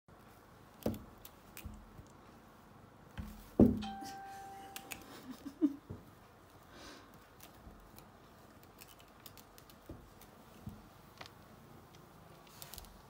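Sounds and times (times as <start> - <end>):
cat knocking and bumping: 3.2 - 4.0
brief ringing tone: 3.8 - 5.0.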